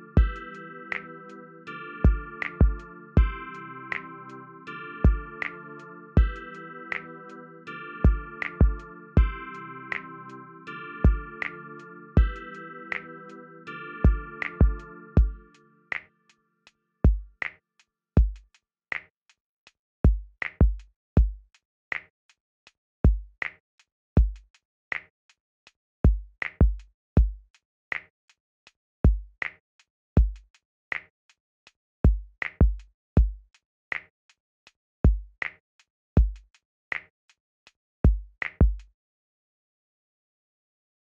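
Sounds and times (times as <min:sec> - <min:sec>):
drum machine beat: 0:00.0 - 0:01.1, 0:02.0 - 0:04.1, 0:05.0 - 0:07.0, 0:08.0 - 0:10.0, 0:11.0 - 0:13.1, 0:14.0 - 0:15.5.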